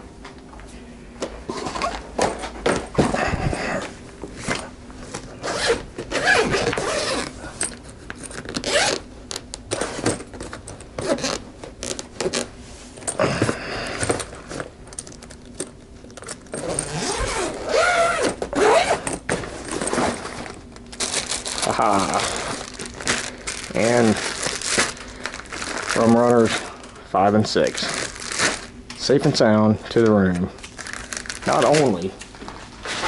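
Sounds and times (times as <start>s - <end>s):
suitcase zipper opening: 5.4s - 7.4s, 8.6s - 9.0s, 11.0s - 12.5s, 16.5s - 20.4s.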